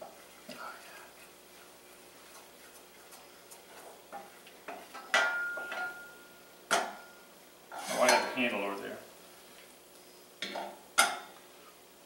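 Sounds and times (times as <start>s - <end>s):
wooden spoon scraping saucepan: 7.7s - 8.4s.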